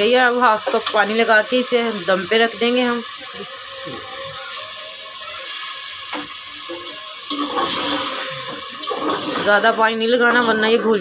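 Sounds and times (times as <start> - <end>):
lentils sizzling in oil: 0.0 - 11.0
water hissing in hot oil: 0.0 - 11.0
metal spoon stirring pot: 6.1 - 11.0.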